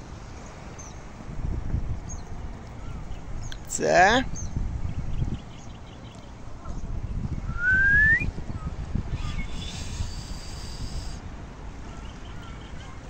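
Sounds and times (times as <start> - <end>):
wind rumbling on microphone: 0.0 - 13.0
short rising whistle: 7.5 - 8.3, 9.2 - 11.2.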